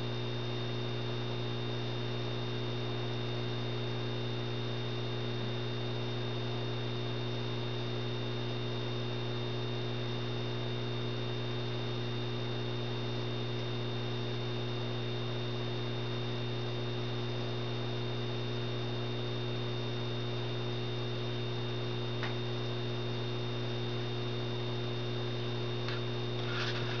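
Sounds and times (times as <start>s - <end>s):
lamp ballast electrical hum: 0.0s - 27.0s.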